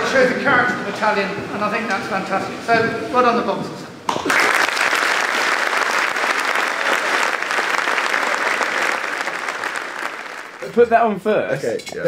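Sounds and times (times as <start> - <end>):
audience applauding: 4.1 - 10.8.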